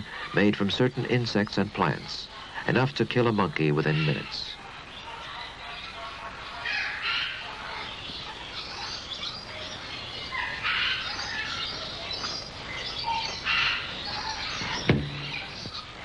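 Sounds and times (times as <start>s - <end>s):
birds chirping and chattering: 0.0s - 16.0s
forest background: 0.0s - 16.0s.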